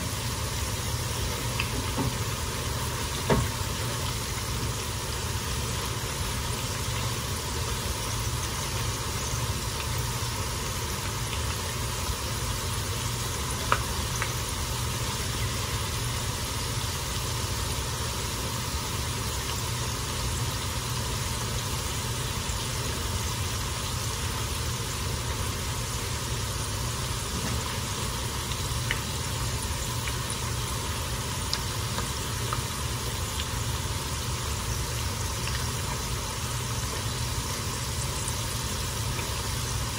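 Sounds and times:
chips sizzling in hot oil: 0.0 - 39.9.

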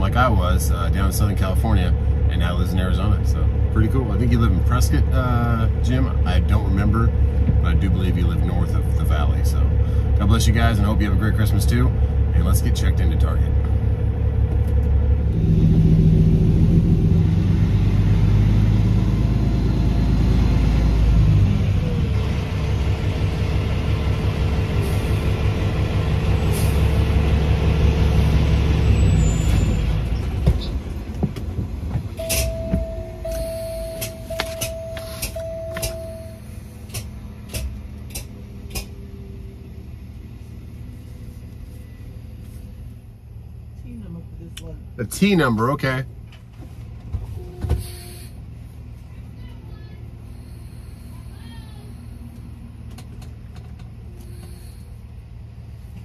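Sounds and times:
truck diesel engine running: 0.0 - 56.0
short steady beeps: 32.2 - 36.5.

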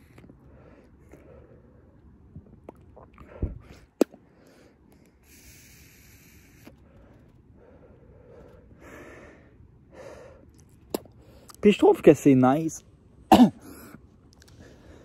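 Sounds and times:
vape pod hissing: 5.2 - 6.8.

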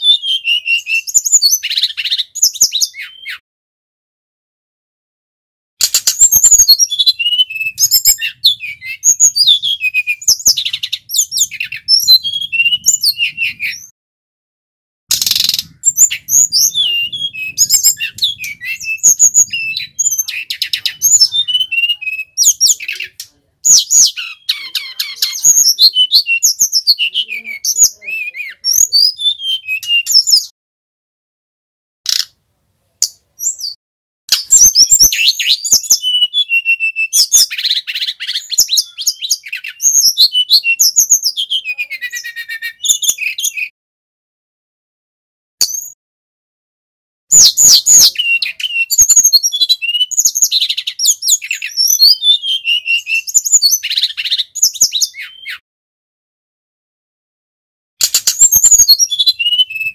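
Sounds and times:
bird singing whistles: 0.0 - 3.4, 5.8 - 13.9, 15.1 - 30.5, 33.4 - 43.7, 45.6 - 46.0, 47.3 - 55.6, 58.0 - 59.9.

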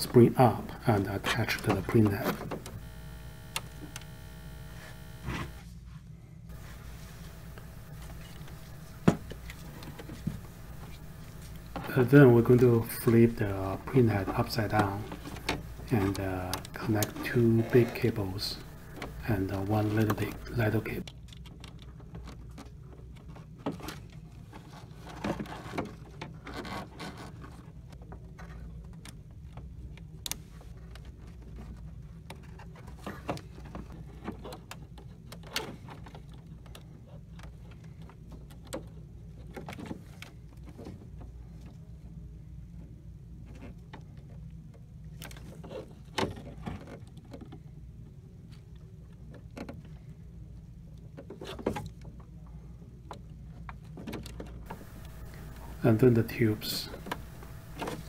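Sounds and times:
steady low hum: 0.0 - 5.6, 6.5 - 21.0, 54.7 - 58.0.

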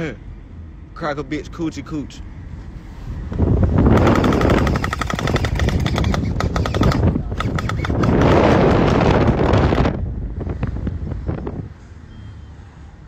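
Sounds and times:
wind rush: 2.2 - 12.0
gel blaster firing full-auto: 3.9 - 8.6.

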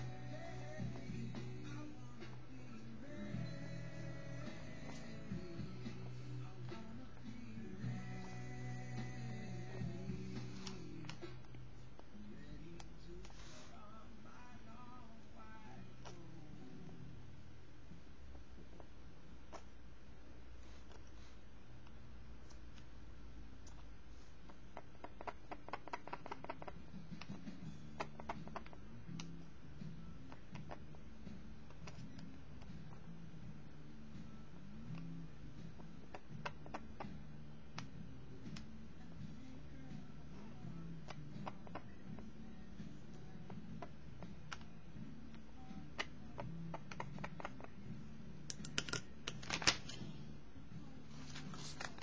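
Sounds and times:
faint background music: 0.0 - 52.0
faint low hum: 0.0 - 52.0.

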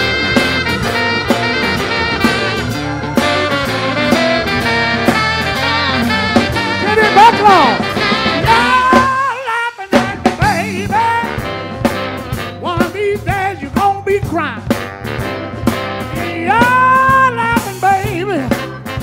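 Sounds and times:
horn section: 0.0 - 19.0
live soul band playing: 0.0 - 19.0
lead vocal singing: 8.4 - 11.7, 12.6 - 14.6, 16.2 - 18.6.

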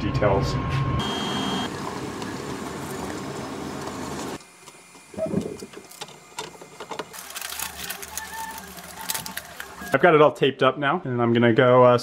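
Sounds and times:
masking tape pulled off roll: 7.1 - 10.0
newspaper crackling: 7.1 - 10.0
tape ripping: 7.1 - 10.0.

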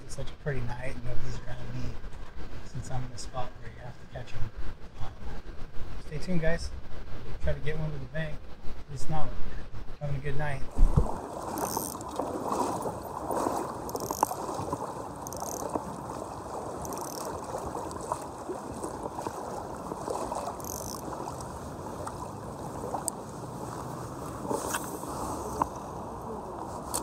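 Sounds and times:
light water splash: 10.7 - 27.0
river water rushing over gravel: 10.7 - 27.0.

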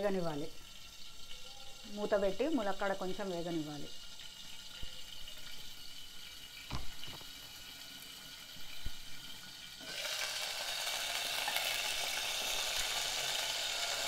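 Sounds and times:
food sizzling in hot oil: 0.0 - 14.0
soft knocks on pot: 6.7 - 7.3.

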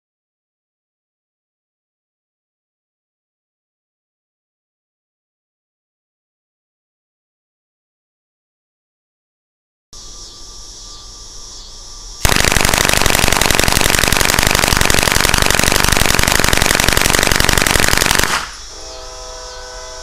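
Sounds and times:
rapid gunfire: 12.2 - 18.6.

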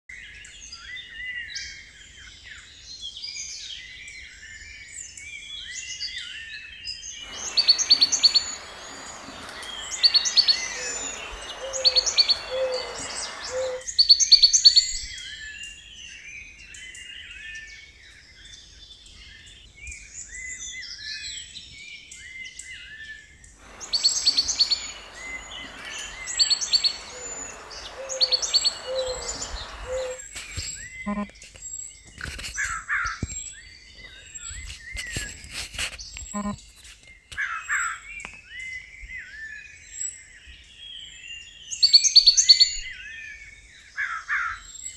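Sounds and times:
birds chirping: 7.2 - 13.8, 23.6 - 31.3
loud sharp bird call: 7.2 - 13.8, 23.6 - 30.3
noise layer: 7.2 - 13.8, 23.6 - 31.3.

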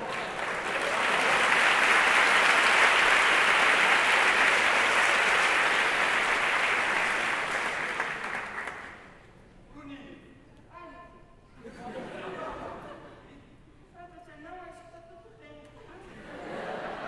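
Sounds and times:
large audience applauding: 0.0 - 9.2.

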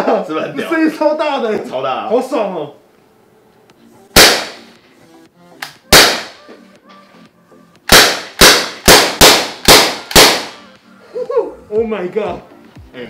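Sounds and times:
loud air gun shots: 4.2 - 4.8, 5.9 - 6.4, 7.9 - 10.7.

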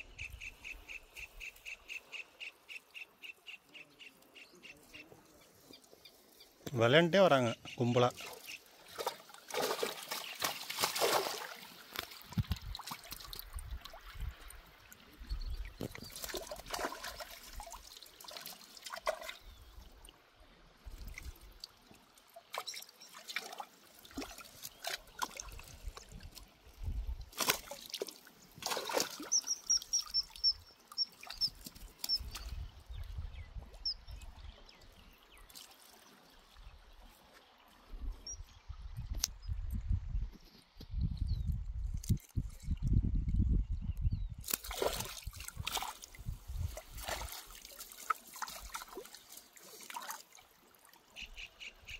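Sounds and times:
bird chirping: 0.0 - 6.2, 29.3 - 35.5, 51.2 - 51.9
water splashing and trickling: 4.1 - 51.9.

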